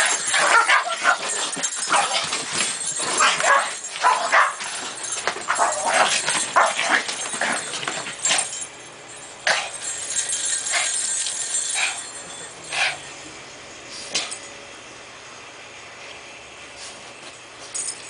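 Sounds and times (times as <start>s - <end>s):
small dogs barking: 0.0s - 2.3s, 3.1s - 4.7s, 5.4s - 8.5s.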